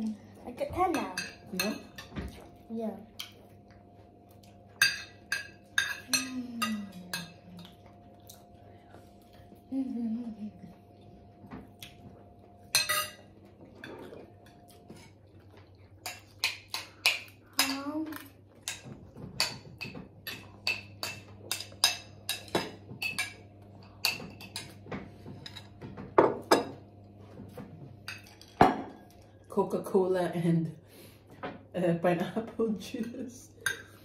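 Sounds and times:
cutlery clinking on plates: 0:04.8 - 0:07.8, 0:12.7 - 0:15.2, 0:16.0 - 0:26.9.

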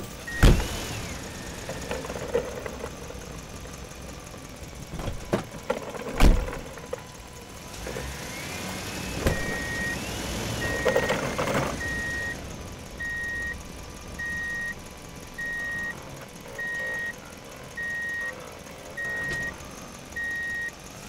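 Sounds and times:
reversing alarm beeping: 0:00.1 - 0:01.8, 0:09.3 - 0:12.4, 0:13.0 - 0:13.6, 0:14.2 - 0:14.8, 0:15.4 - 0:20.8.

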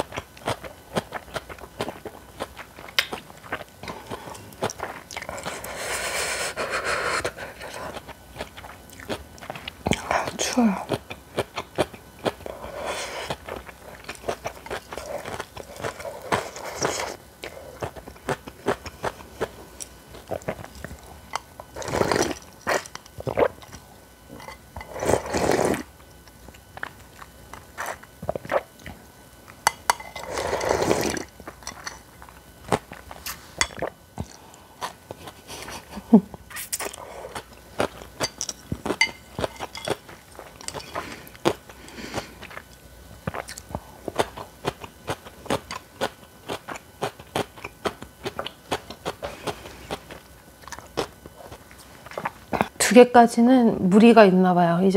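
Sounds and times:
crunching and chewing: 0:00.0 - 0:52.8
noodle slurping: 0:21.7 - 0:23.6, 0:24.8 - 0:25.9, 0:30.2 - 0:31.9.

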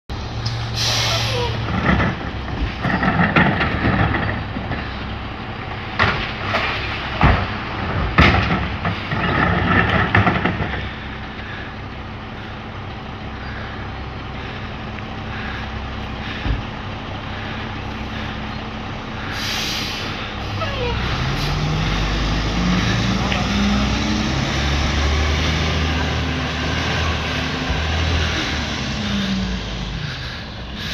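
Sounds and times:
garbage truck diesel engine: 0:00.1 - 0:30.9
recyclables clattering and banging: 0:01.3 - 0:05.2, 0:05.9 - 0:11.7.

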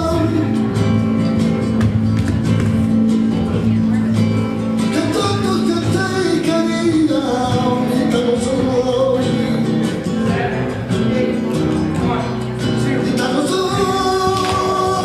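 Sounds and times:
guitar accompaniment: 0:00.0 - 0:15.0
person singing: 0:04.8 - 0:15.0.

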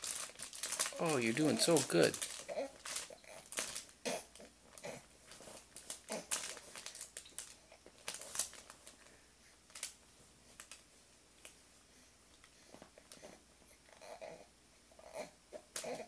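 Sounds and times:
fabric crinkling and rustling: 0:00.0 - 0:04.0, 0:04.7 - 0:09.1
baby grunting: 0:14.0 - 0:16.0.

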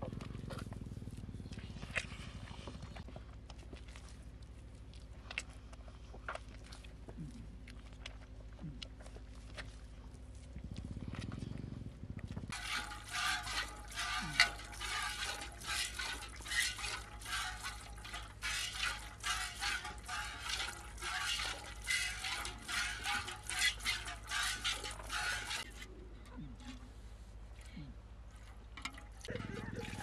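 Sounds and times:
milk squirting into metal pot: 0:12.5 - 0:25.7.

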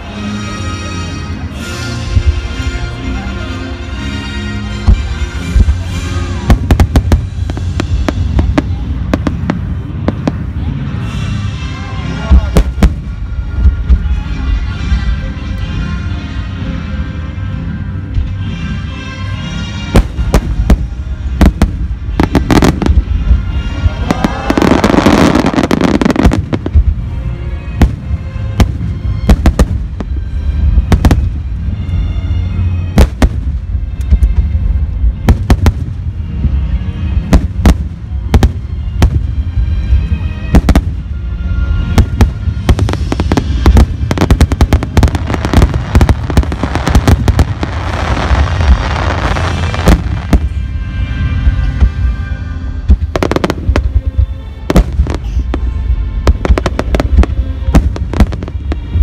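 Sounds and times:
music playing: 0:00.0 - 0:59.0
fireworks crackling: 0:04.7 - 0:14.5, 0:19.8 - 0:32.0, 0:32.7 - 0:59.0
low rumble: 0:04.7 - 0:18.4, 0:19.8 - 0:59.0
fireworks bangs: 0:04.8 - 0:11.3, 0:19.9 - 0:27.0, 0:27.8 - 0:31.5, 0:33.0 - 0:34.4, 0:41.8 - 0:50.7, 0:52.8 - 0:59.0.

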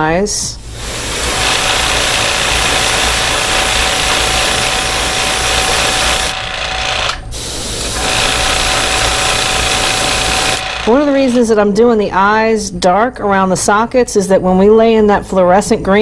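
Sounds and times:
airbrush hissing: 0:00.6 - 0:11.4
small motor humming: 0:00.7 - 0:11.4.

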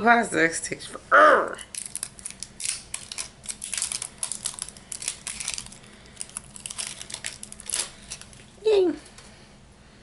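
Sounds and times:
plastic packaging crinkling: 0:01.6 - 0:08.6.

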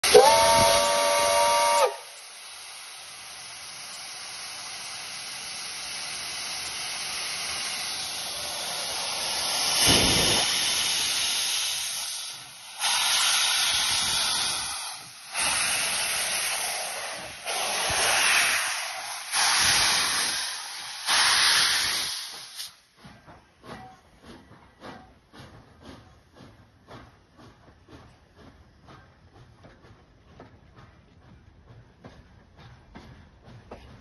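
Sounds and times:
steam locomotive whistle chord: 0:00.0 - 0:02.2
hiss of steam venting: 0:00.0 - 0:22.9.

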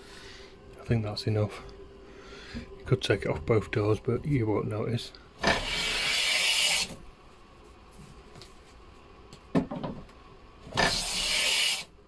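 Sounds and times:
hand plane cutting wood: 0:05.4 - 0:06.9, 0:10.7 - 0:11.9.

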